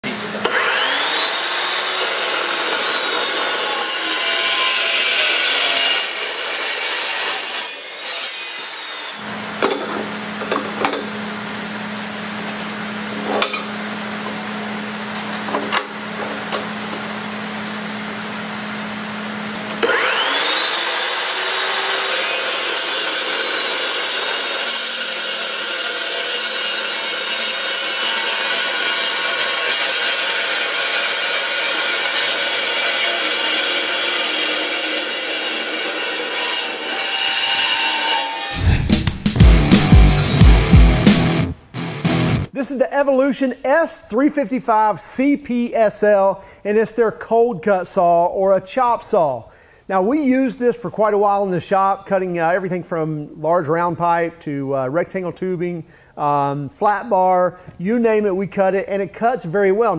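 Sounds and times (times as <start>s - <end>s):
chop saw motor whine: 0.0s - 6.7s, 7.3s - 12.0s, 18.6s - 38.8s
saw blade cutting steel: 0.0s - 10.0s, 19.8s - 40.3s.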